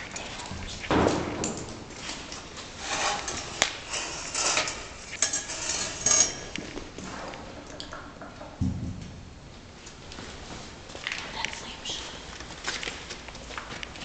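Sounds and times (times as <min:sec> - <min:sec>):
clinks and knocks: 0:02.9 - 0:06.8
footsteps on gritty floor: 0:12.3 - 0:14.0.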